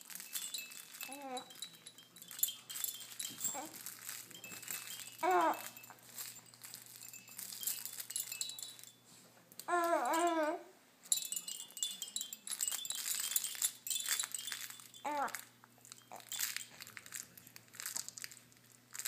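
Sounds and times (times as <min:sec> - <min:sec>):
baby toy jingling: 0:00.0 - 0:09.0, 0:09.6 - 0:19.0
baby cooing: 0:05.2 - 0:05.8, 0:09.7 - 0:10.7, 0:15.0 - 0:15.4.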